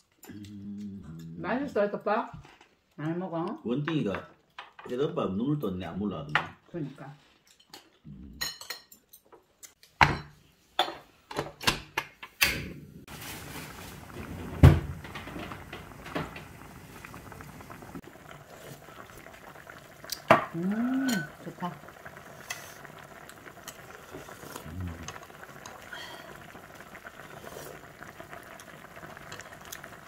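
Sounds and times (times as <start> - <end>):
stew bubbling in a pot: 12.7 - 30.0.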